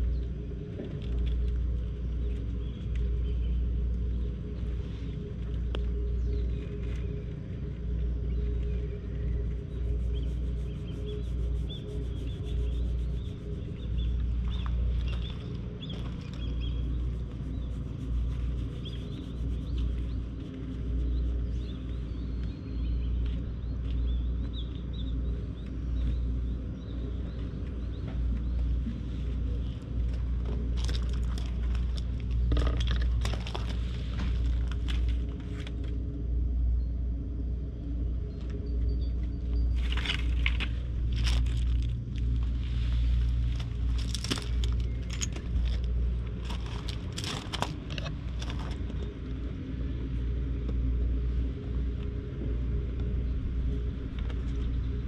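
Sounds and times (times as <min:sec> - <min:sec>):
low engine drone: 0:00.0 - 0:55.0
close clicks crackles and rustles: 0:30.0 - 0:36.0, 0:43.3 - 0:49.2.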